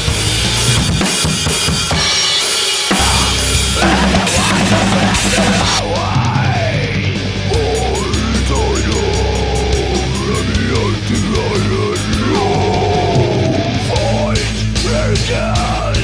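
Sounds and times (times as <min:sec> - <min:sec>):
drum kit played hard: 0:00.0 - 0:16.0
electric guitar bending notes: 0:02.9 - 0:14.8.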